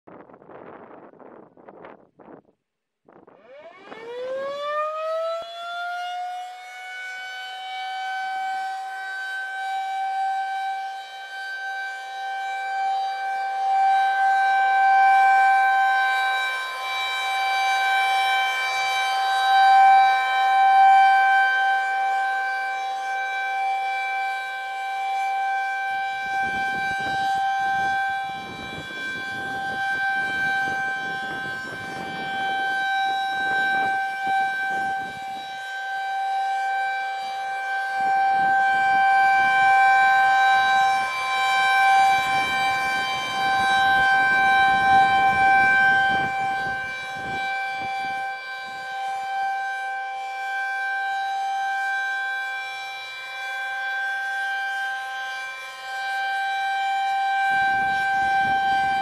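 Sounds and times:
wind gusts on microphone: 0.1 - 2.5, 26.4 - 32.7, 42.0 - 48.2
rotating siren wailing: 3.1 - 59.0.

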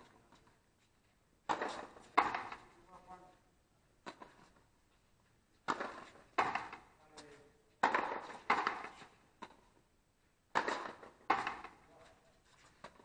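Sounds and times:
ball smacking against wall: 1.5 - 2.7, 5.6 - 6.9, 7.8 - 9.6, 10.5 - 11.8
racket striking rubber ball: 1.5 - 2.7, 4.0 - 4.4, 5.6 - 6.9, 7.8 - 9.6, 10.5 - 11.8.

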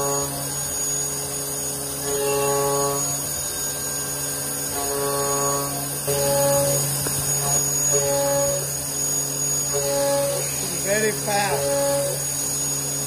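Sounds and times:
machine whining tones: 0.0 - 13.0
machining center humming: 0.0 - 13.0.

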